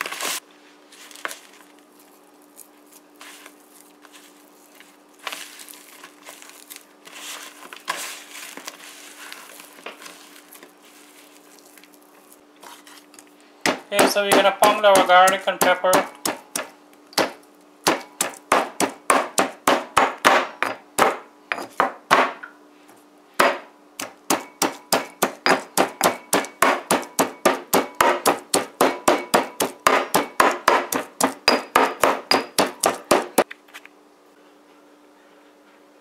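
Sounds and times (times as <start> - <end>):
stone pestle pounding in mortar: 13.7 - 22.4, 23.4 - 33.4.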